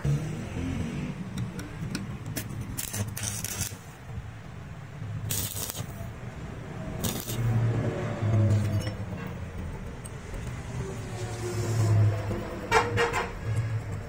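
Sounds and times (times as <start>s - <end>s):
arc welding crackle and hiss: 2.4s - 4.0s, 5.2s - 6.2s, 7.0s - 7.6s.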